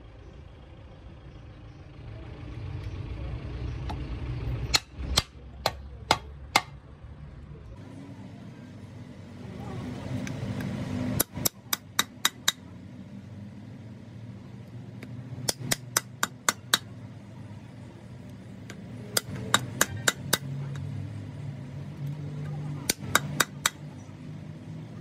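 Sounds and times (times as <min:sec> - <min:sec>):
hammer striking steel: 0:04.7 - 0:06.8, 0:11.2 - 0:12.6, 0:15.4 - 0:16.9, 0:18.7 - 0:20.8, 0:22.8 - 0:23.9.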